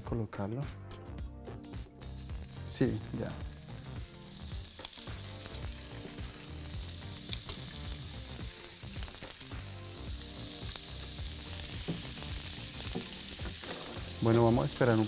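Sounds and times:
meat sizzling in hot oil: 0:01.6 - 0:15.0
skewers knocking on pan: 0:11.7 - 0:14.2.

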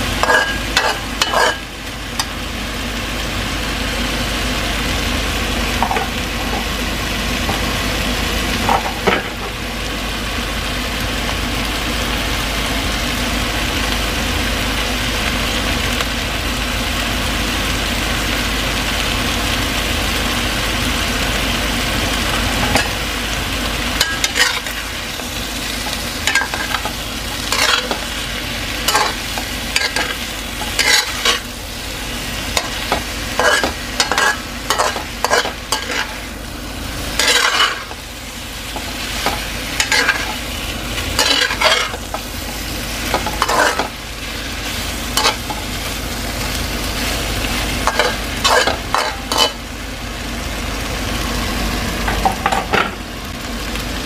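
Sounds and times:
chicken sizzling in a pan: 0:00.0 - 0:54.0
utensil scraping a pan: 0:00.2 - 0:01.6, 0:24.0 - 0:24.9, 0:25.8 - 0:28.2, 0:28.8 - 0:31.5, 0:32.6 - 0:36.2, 0:37.2 - 0:38.0, 0:41.2 - 0:43.9.

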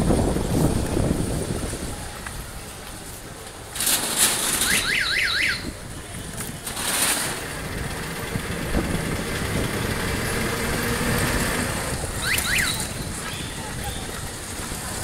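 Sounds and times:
busy street traffic: 0:00.0 - 0:15.0.

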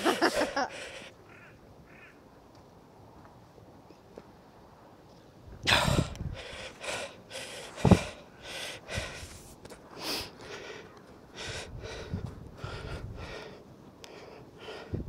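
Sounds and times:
person breathing hard and gasping: 0:00.0 - 0:01.2, 0:05.6 - 0:15.0.

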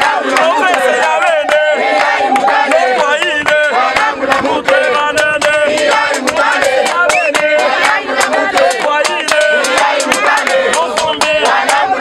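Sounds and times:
group singing and chanting: 0:00.0 - 0:12.0
sharp percussive hits: 0:04.7 - 0:12.0.

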